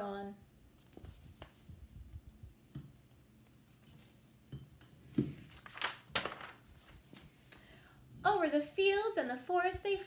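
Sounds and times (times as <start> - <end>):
paper rustles: 5.5 - 7.4.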